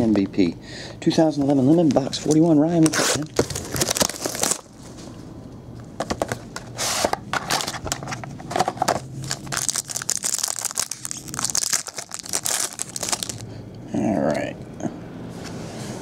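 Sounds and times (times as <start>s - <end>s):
plastic wrapping rustling: 1.6s - 5.2s, 7.4s - 13.4s
foil pack crinkling and tearing: 1.8s - 5.0s, 7.4s - 13.4s.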